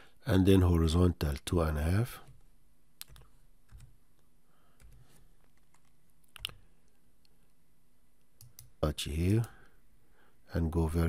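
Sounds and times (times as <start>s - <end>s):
faint low hum: 0.0s - 11.0s
keyboard and mouse clicks: 3.0s - 4.0s, 4.8s - 7.4s, 8.3s - 8.8s.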